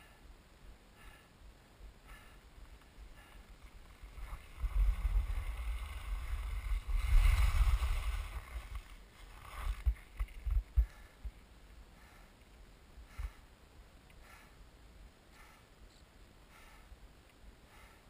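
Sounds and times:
wind buffeting microphone: 3.8s - 11.4s
skis hissing on snow: 4.3s - 9.8s.

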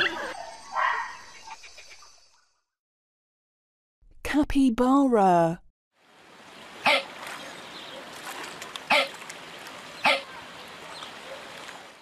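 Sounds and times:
capybara calling: 6.8s - 7.1s, 8.9s - 9.2s, 10.0s - 10.4s.

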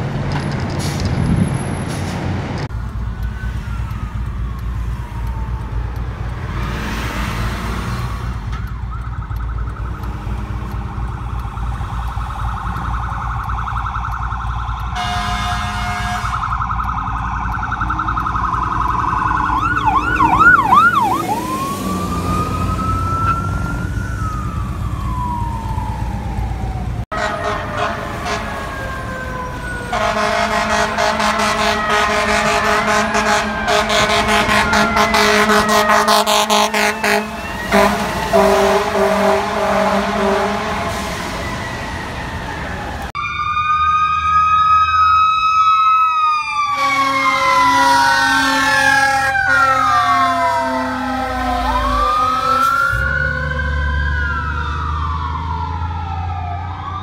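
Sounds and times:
sirens wailing and yelping: 2.6s - 57.0s
air horn blasts: 15.0s - 16.6s, 27.1s - 28.7s, 29.9s - 41.5s, 46.8s - 52.9s.

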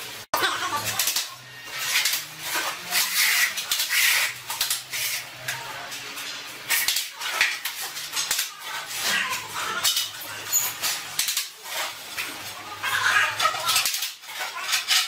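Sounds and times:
trowel scraping adhesive: 1.8s - 5.2s.

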